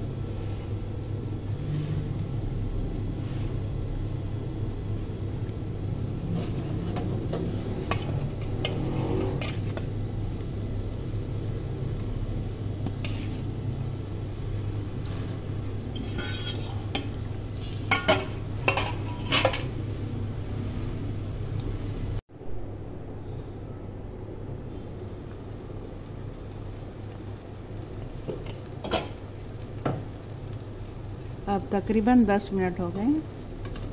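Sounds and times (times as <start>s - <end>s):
steady low hum: 0.0s - 33.9s
metal spatula scraping pot: 6.2s - 9.9s, 12.8s - 13.6s, 15.0s - 17.2s, 17.9s - 19.8s.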